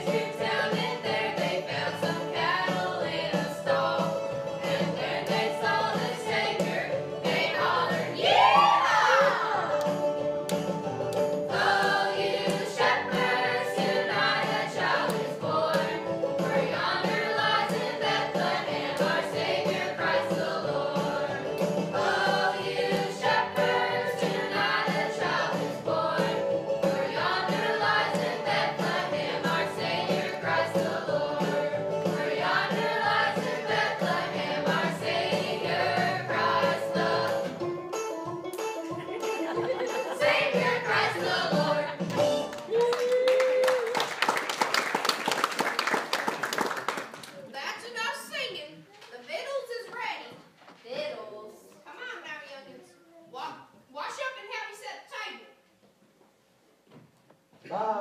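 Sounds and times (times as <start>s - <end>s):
young voices singing together: 0.0s - 9.8s, 11.5s - 37.6s, 40.0s - 42.2s
instrumental accompaniment: 9.4s - 42.7s.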